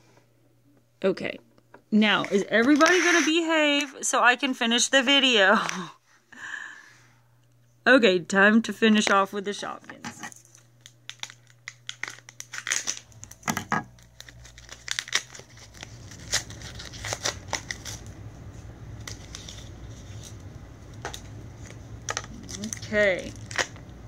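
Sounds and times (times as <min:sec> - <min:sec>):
low steady hum: 0:00.0 - 0:24.0
plastic packaging crinkling: 0:10.3 - 0:24.0.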